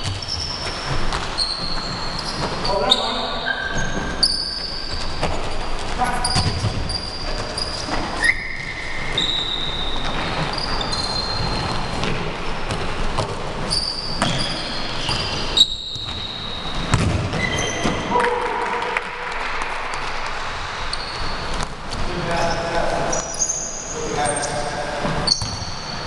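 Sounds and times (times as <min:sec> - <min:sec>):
ball being kicked and bouncing: 0:00.0 - 0:01.8, 0:04.9 - 0:07.0, 0:11.6 - 0:13.5, 0:16.8 - 0:18.1, 0:25.3 - 0:25.7
sneaker squeaks on hardwood floor: 0:00.0 - 0:18.4, 0:20.8 - 0:26.0.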